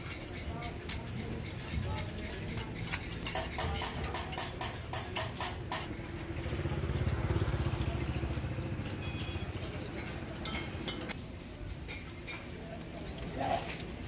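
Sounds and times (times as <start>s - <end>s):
vehicle engine passing by: 5.9s - 10.2s.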